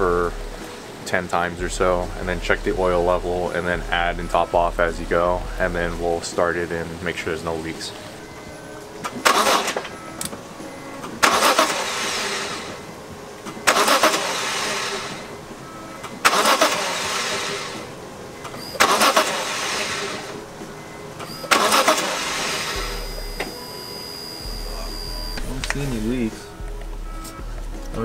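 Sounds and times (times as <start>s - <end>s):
engine starter cranking: 9.0s - 15.4s, 16.0s - 27.9s.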